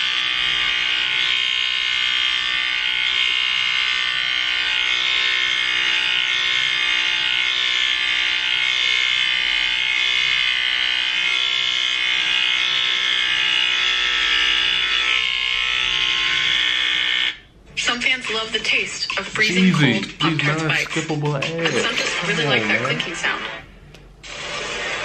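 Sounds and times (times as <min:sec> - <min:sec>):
electric hair clippers buzzing: 0:00.0 - 0:17.5.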